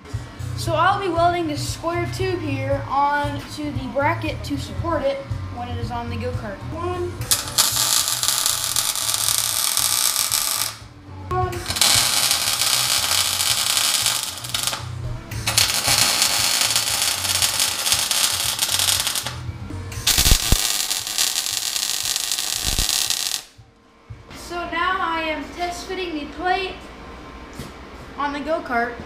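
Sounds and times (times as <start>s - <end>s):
welding arc crackling: 7.3s - 10.9s, 11.7s - 14.9s, 15.5s - 19.4s, 20.1s - 23.6s.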